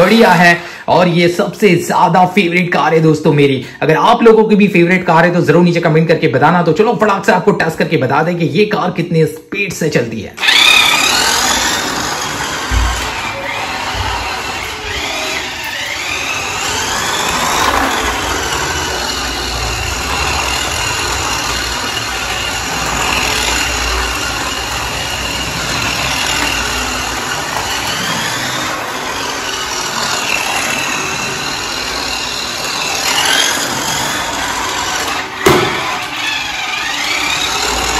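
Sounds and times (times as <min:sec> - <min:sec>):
toy car motor whine: 0:10.4 - 0:37.9.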